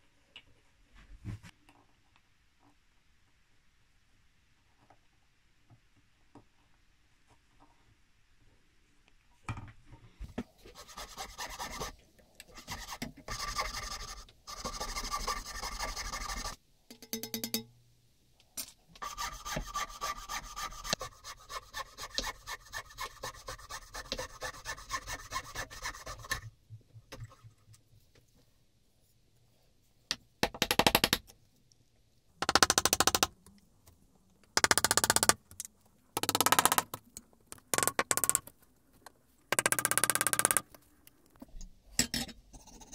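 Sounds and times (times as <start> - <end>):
fine saw cutting wood: 19.0 - 26.4.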